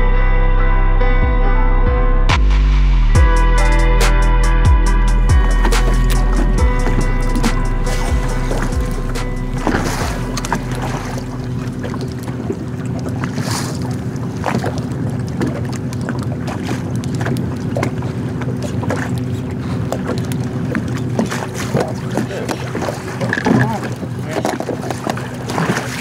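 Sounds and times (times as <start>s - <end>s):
steady low hum: 3.0s - 26.0s
wind on microphone: 4.0s - 24.6s
water lapping against hull: 4.9s - 26.0s.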